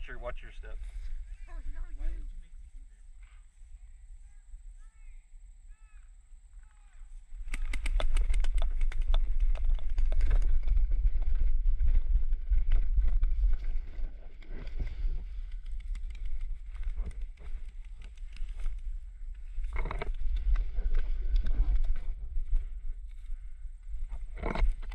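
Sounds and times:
wind rumbling on microphone: 6.5 - 24.9.

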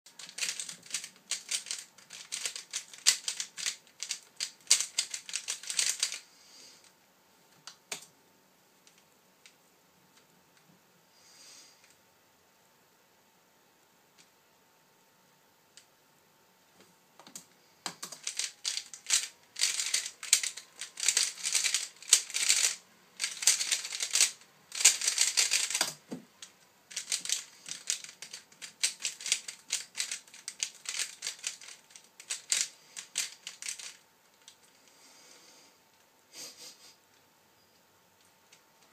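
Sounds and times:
puzzle cube clicking rapidly: 0.2 - 6.2, 17.3 - 26.1, 26.9 - 34.5.

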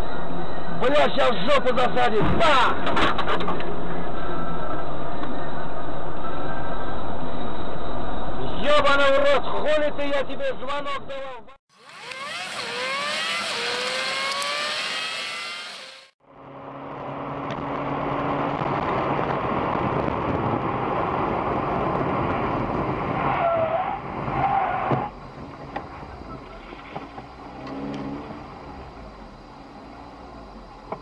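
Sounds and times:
car engine revving: 11.7 - 31.0
engine and tyre noise: 11.7 - 31.0.

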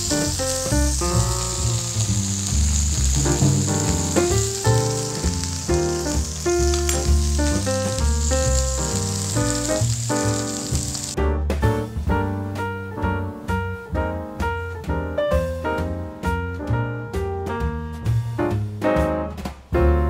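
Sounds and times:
steak sizzling in a frying pan: 0.0 - 11.2
keyboard music over bass line: 0.0 - 20.0.

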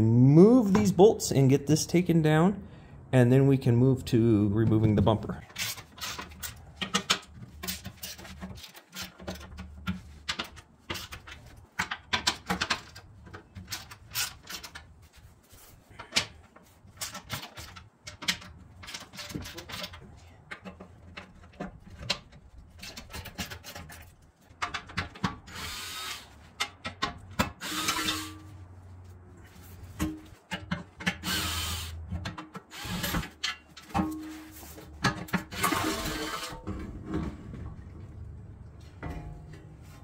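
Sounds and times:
metal clicks and knocks: 5.5 - 14.9, 16.0 - 25.5
cordless power tool bursts: 27.6 - 28.4, 31.2 - 32.0, 32.7 - 33.3.

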